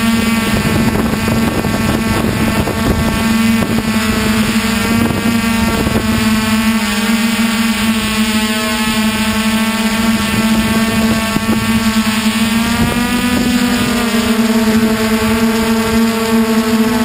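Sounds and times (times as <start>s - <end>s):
drone motors and propellers humming: 0.0s - 17.0s.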